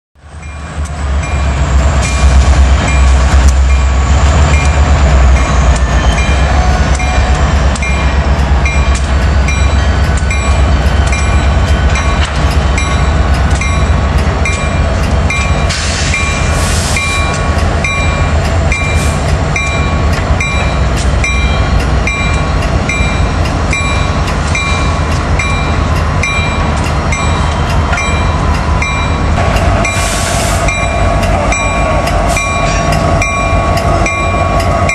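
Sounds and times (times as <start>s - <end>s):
diesel locomotive engine rumbling: 0.2s - 34.9s
train cars rumbling on rails: 0.2s - 34.9s
locomotive bell ringing: 0.3s - 34.9s.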